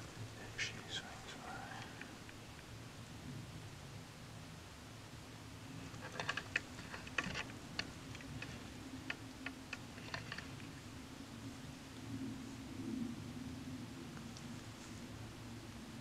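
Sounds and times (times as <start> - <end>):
low steady hum: 0.0 - 16.0
gear clicking and tapping: 6.0 - 10.5.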